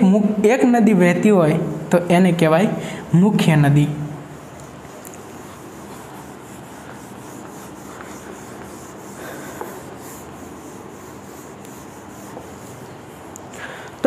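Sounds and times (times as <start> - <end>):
duster wiping whiteboard: 3.3 - 13.8.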